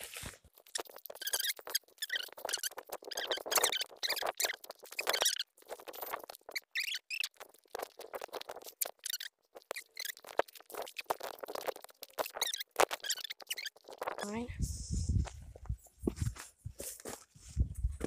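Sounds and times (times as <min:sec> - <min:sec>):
high chirp-like squeaks: 0:00.6 - 0:11.5, 0:12.2 - 0:14.3.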